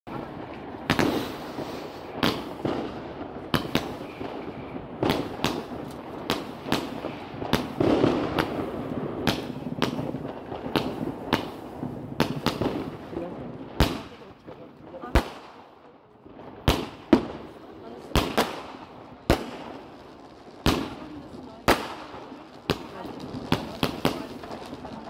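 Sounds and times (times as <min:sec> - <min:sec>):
firework bangs: 0:00.1 - 0:25.0
hiss of burning charges: 0:00.9 - 0:02.6.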